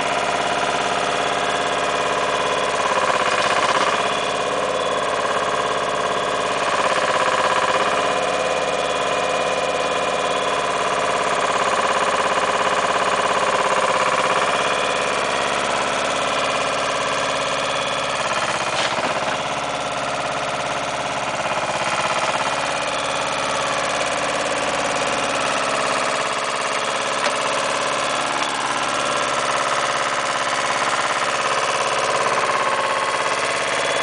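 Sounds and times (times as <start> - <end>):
engine running at raised revs: 0.0 - 34.0
bucket digging soil: 3.0 - 4.2, 18.4 - 19.5.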